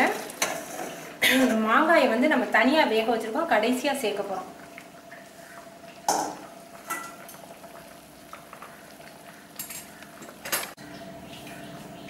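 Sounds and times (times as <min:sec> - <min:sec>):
water boiling in a pan: 0:00.0 - 0:11.1
metal kitchenware clinking: 0:06.1 - 0:07.4, 0:09.6 - 0:10.8.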